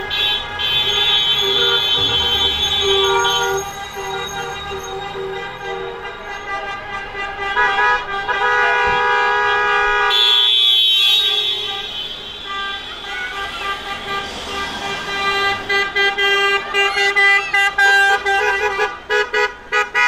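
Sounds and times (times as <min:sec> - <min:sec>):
car engines and tyres: 0:00.0 - 0:20.0
car horns honking: 0:00.0 - 0:20.0.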